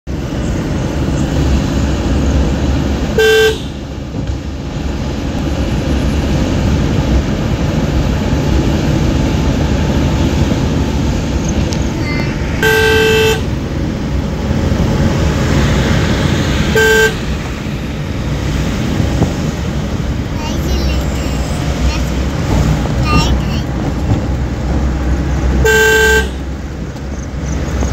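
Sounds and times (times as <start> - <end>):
engine and tyre rumble: 0.0 - 27.9
vehicle horn: 3.2 - 3.9, 12.6 - 13.6, 16.7 - 17.4, 25.6 - 26.5.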